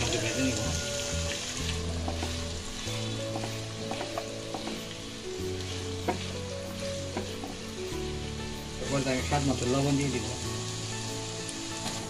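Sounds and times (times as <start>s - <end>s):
food sizzling in hot oil: 0.0s - 12.0s
spatula scraping and tapping pan: 1.3s - 8.0s.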